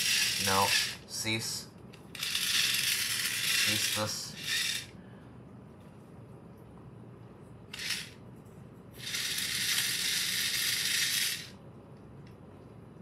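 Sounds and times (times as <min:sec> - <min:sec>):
toy motor rattling buzz: 0:00.0 - 0:01.1, 0:02.1 - 0:05.0, 0:07.7 - 0:08.2, 0:09.0 - 0:11.6.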